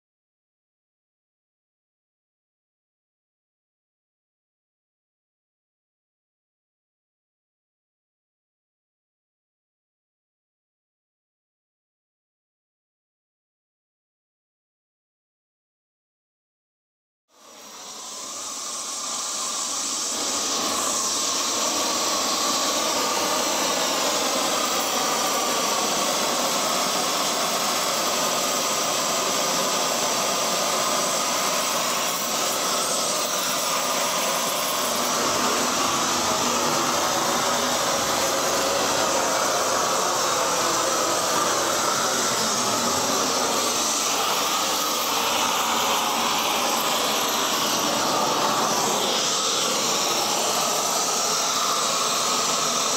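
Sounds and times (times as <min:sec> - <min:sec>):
gas torch flame hissing: 0:17.5 - 0:52.9.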